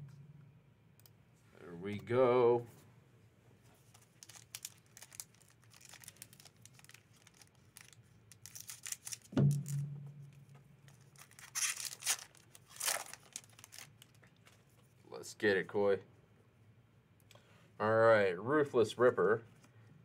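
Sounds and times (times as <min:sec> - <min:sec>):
foil wrapper crinkling: 0:03.8 - 0:09.8, 0:10.8 - 0:14.7
foil wrapper tearing: 0:03.9 - 0:09.8, 0:10.9 - 0:14.3.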